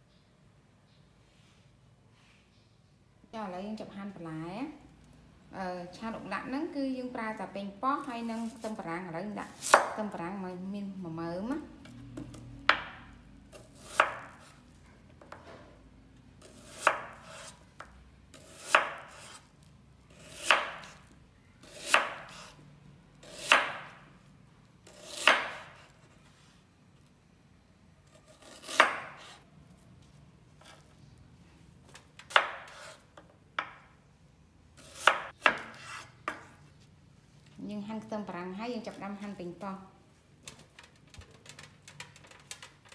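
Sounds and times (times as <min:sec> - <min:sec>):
knife slicing onion on board: 0:09.6 - 0:10.0, 0:12.2 - 0:14.6, 0:16.4 - 0:19.5, 0:20.1 - 0:22.6, 0:23.2 - 0:24.0, 0:24.8 - 0:26.1, 0:28.1 - 0:29.4, 0:30.6 - 0:30.9, 0:31.9 - 0:33.8, 0:34.8 - 0:36.7.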